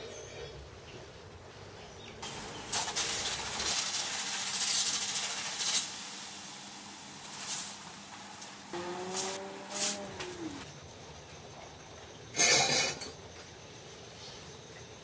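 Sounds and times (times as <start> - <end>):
water hissing on hot metal: 2.2 - 10.7.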